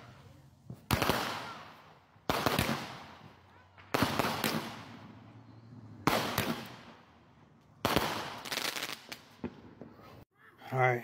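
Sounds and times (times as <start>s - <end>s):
firework bangs: 0.6s - 10.2s
firework pops and crackle: 7.8s - 10.1s.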